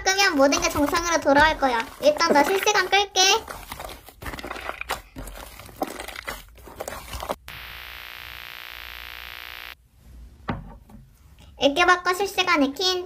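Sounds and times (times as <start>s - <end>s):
hands squishing slime: 0.0s - 7.4s
static hiss: 7.4s - 9.8s.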